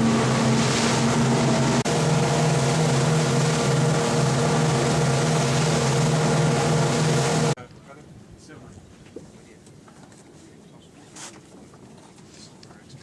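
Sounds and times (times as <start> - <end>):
motor boat engines droning: 0.0 - 7.6
wind: 0.0 - 13.0.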